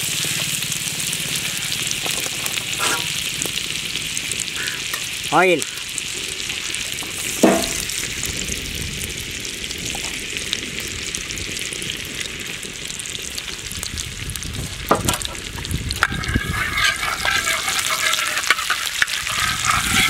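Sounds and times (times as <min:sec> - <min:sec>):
oil sizzling on a griddle: 0:00.0 - 0:20.0
metal spatula scraping a pan: 0:02.0 - 0:03.2, 0:16.0 - 0:20.0.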